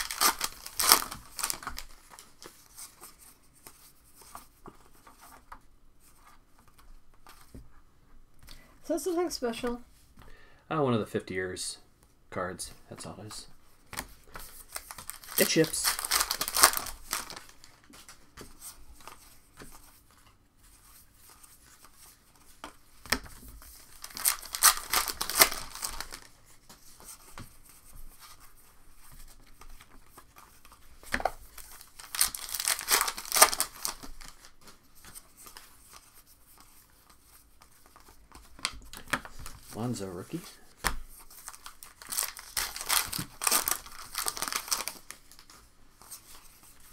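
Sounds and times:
card pack wrappers tearing: 0:00.0 - 0:02.4, 0:14.7 - 0:17.8, 0:23.9 - 0:26.3, 0:31.6 - 0:34.5, 0:41.4 - 0:45.4
wrappers and cards rustling: 0:00.0 - 0:07.8, 0:12.9 - 0:46.9.

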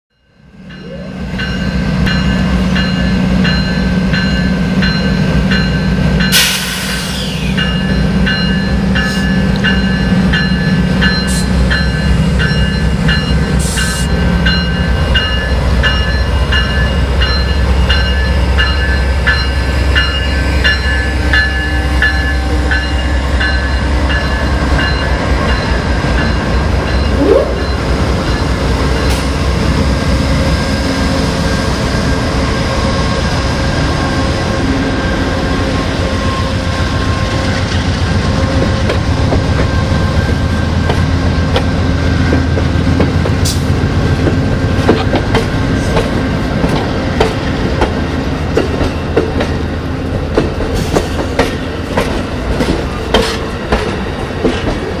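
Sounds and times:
locomotive bell ringing: 0:00.1 - 0:42.3
locomotive engine drone: 0:00.4 - 0:55.0
air hiss: 0:06.4 - 0:07.5.

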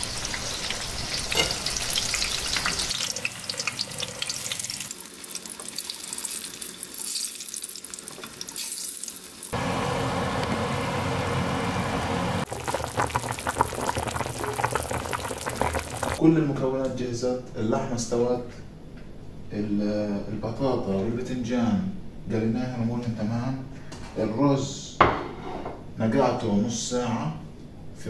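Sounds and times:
oil sizzling and crackling: 0:00.0 - 0:16.2
broth bubbling at a boil: 0:12.4 - 0:16.2.

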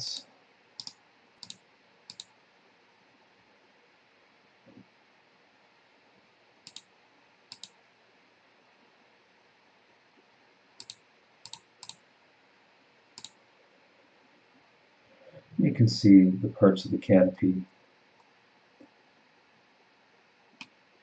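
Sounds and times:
computer mouse clicking: 0:00.8 - 0:02.4, 0:06.6 - 0:06.9, 0:07.5 - 0:07.8, 0:10.8 - 0:12.0, 0:13.2 - 0:13.4, 0:20.6 - 0:20.8.

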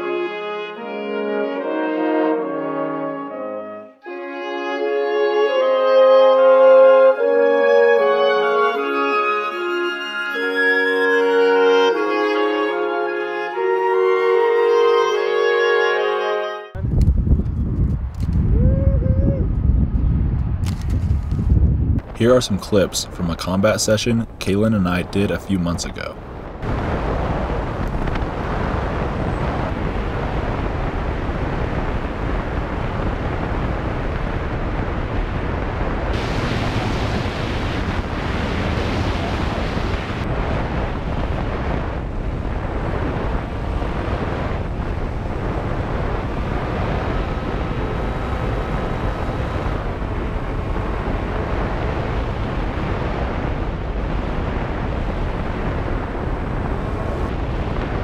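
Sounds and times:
wind rushing over microphone: 0:16.8 - 0:58.0
electric motor and propeller whine: 0:26.6 - 0:58.0.

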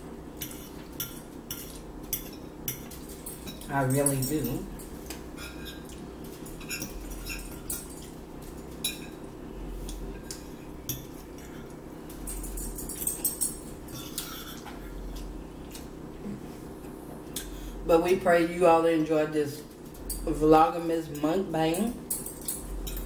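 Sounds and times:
forks clinking on plates: 0:00.4 - 0:09.2, 0:09.9 - 0:14.7, 0:21.2 - 0:23.0.

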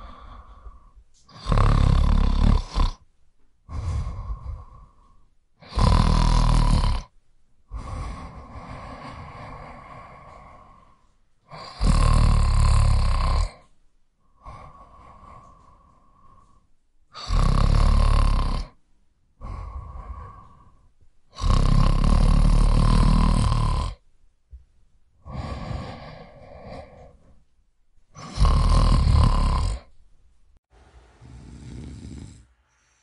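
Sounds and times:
man snoring: 0:00.0 - 0:03.0, 0:03.7 - 0:07.1, 0:07.7 - 0:13.7, 0:14.3 - 0:18.8, 0:19.4 - 0:24.0, 0:25.2 - 0:27.3, 0:28.2 - 0:29.9, 0:31.2 - 0:33.0
quiet breaths: 0:00.0 - 0:30.6, 0:31.2 - 0:33.0.

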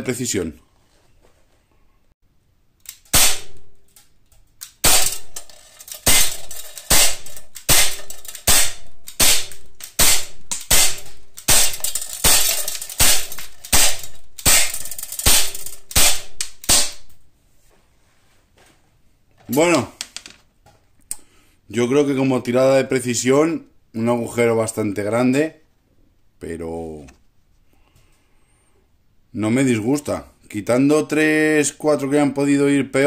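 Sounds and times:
air pistol pops: 0:02.8 - 0:03.7, 0:04.6 - 0:05.3, 0:06.0 - 0:17.2
pellet ringing on steel trap: 0:04.8 - 0:17.0.

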